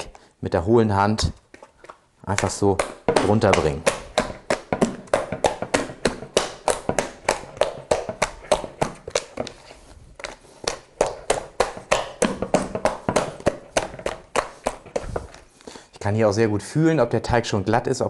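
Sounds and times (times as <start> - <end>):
hand slapping wet dough: 1.2 - 15.6.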